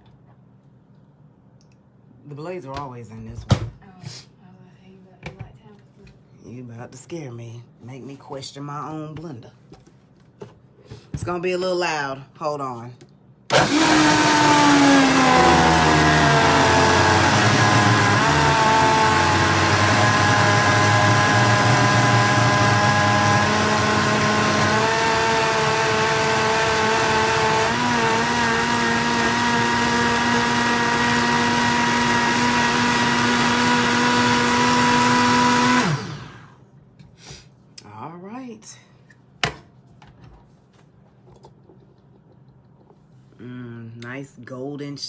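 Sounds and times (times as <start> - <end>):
blender running at high speed: 13.5 - 36.6.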